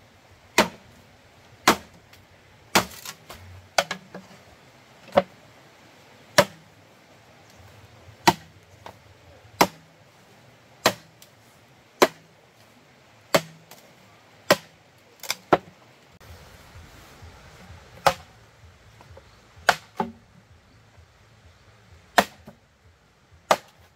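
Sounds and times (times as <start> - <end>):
sharp chopping strikes: 0.6 - 0.8, 1.6 - 2.0, 2.7 - 4.0, 6.4 - 6.6, 8.2 - 8.5, 9.6 - 9.9, 10.8 - 11.2, 12.0 - 12.3, 13.3 - 13.8, 14.5 - 15.6, 19.6 - 20.2, 22.1 - 22.6, 23.5 - 23.9.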